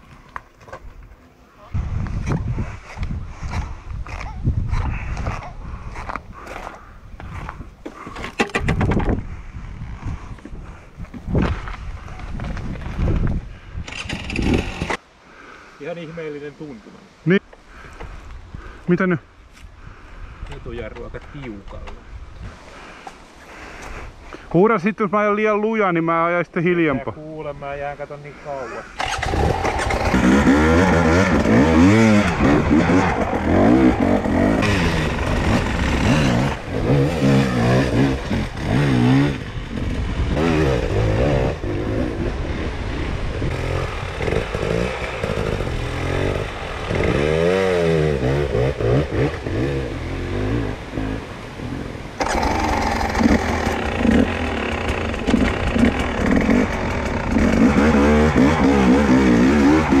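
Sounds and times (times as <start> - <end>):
dirt bike engine revving: 13.9 - 15.0, 29.0 - 60.0.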